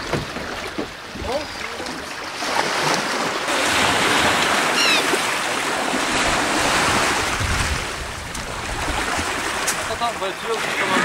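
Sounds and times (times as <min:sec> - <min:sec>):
sea waves and wind: 0:00.0 - 0:11.0
seabird chirp: 0:04.6 - 0:05.2.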